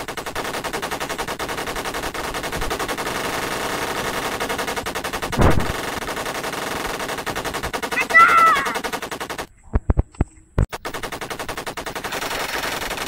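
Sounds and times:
machine gun firing: 0.0 - 9.5, 10.7 - 13.0
loud deep bang: 5.4 - 5.7.

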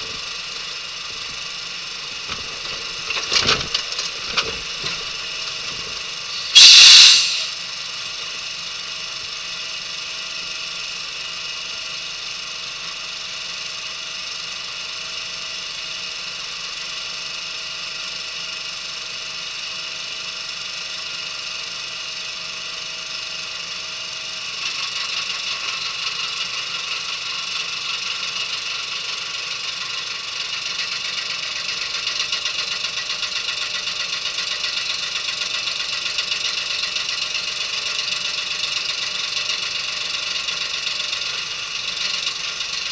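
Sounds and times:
engine running: 0.0 - 8.2
loud hiss: 6.3 - 7.7.

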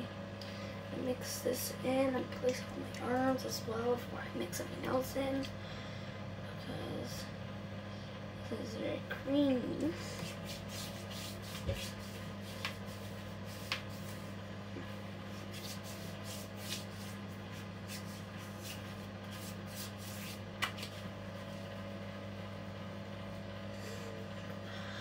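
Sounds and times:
steady low hum: 0.0 - 25.0
hands rubbing skin: 10.1 - 14.3, 15.3 - 21.5.

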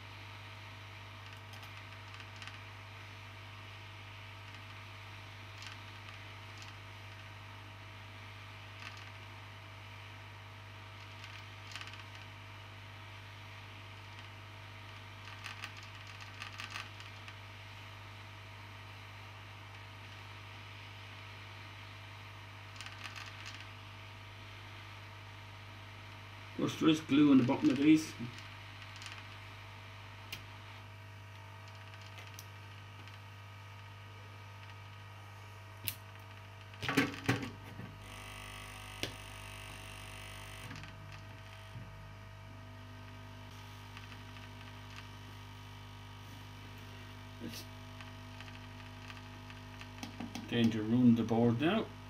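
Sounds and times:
low hum: 26.3 - 51.1.

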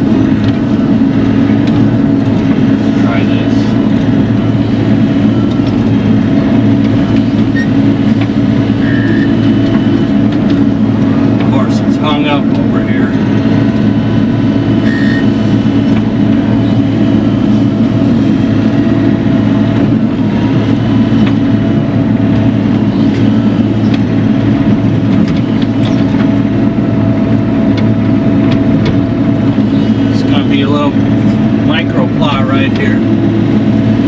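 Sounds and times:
excavator diesel engine running: 0.0 - 34.0.

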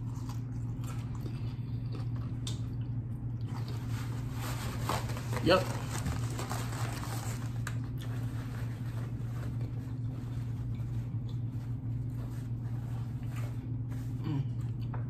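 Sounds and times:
low background hum: 0.0 - 15.0
paper towel rustling: 3.6 - 14.2.

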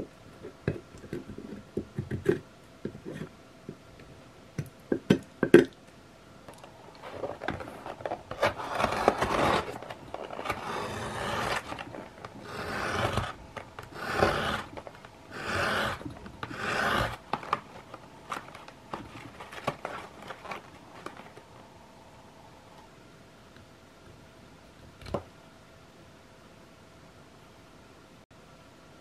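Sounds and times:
blade slicing through cardboard: 8.3 - 17.7.

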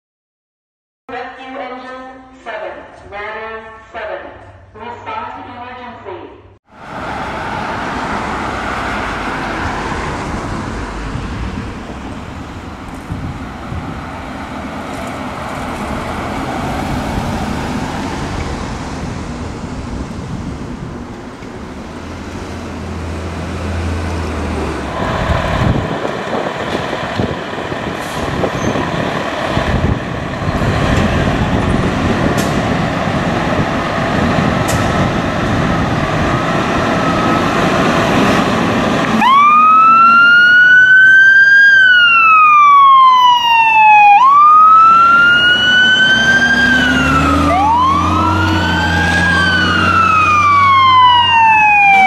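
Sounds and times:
road traffic noise: 6.6 - 52.0
diesel engine running: 6.8 - 39.5.

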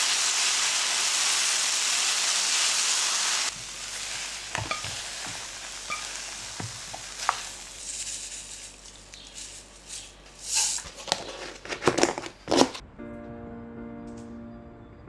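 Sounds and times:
noodles sizzling: 0.0 - 12.8
chopsticks tapping and scraping: 4.5 - 12.8.

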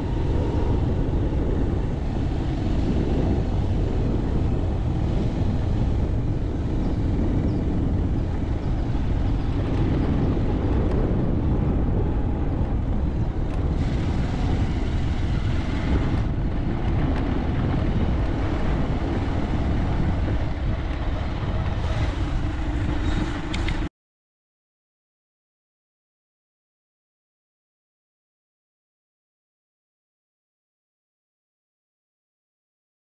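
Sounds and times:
wind buffeting microphone: 0.0 - 23.9.

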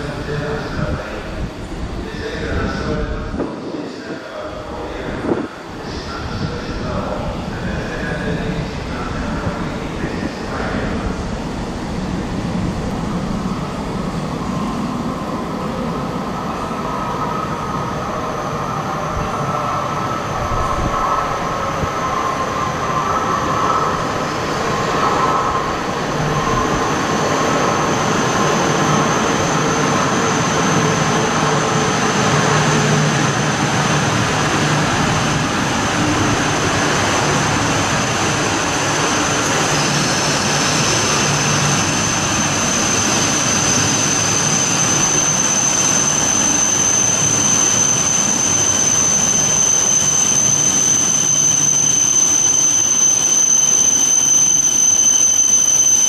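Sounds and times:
train wheels rumbling on rail: 0.0 - 56.0
thin high whine: 24.9 - 56.0.

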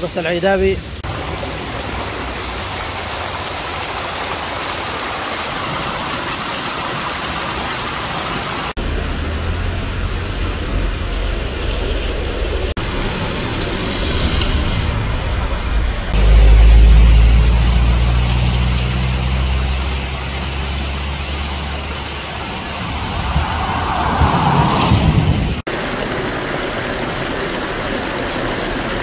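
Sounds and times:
water rushing over rocks: 0.0 - 8.9, 16.1 - 29.0.

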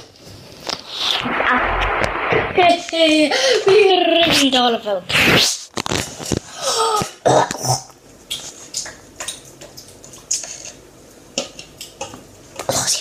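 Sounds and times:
faint clicks and taps: 8.3 - 10.8.

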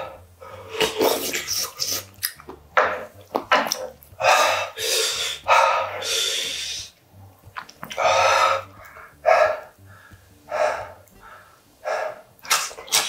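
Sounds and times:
man breathing hard: 4.2 - 7.0, 8.0 - 12.4.

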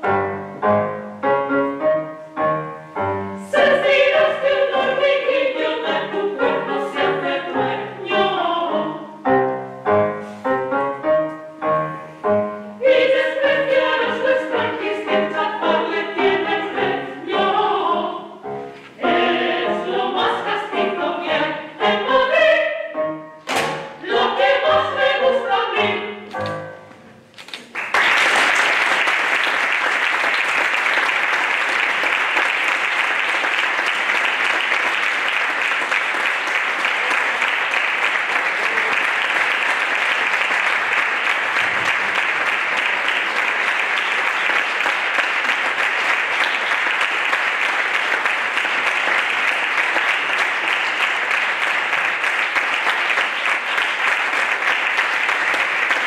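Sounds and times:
women singing with piano: 3.4 - 9.2, 12.8 - 23.0, 24.0 - 26.3
audience applause: 27.6 - 56.0.

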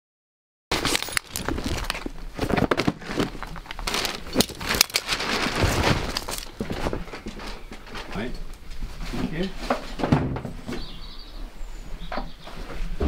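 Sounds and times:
metal carabiners clinking: 0.7 - 2.0
harnesses and bag rustling: 0.7 - 10.0.

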